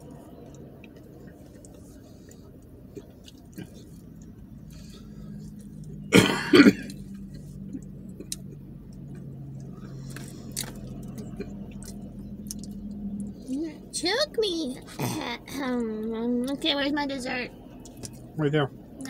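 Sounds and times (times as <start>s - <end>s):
low steady hum: 0.0s - 19.0s
person coughing: 6.1s - 7.0s.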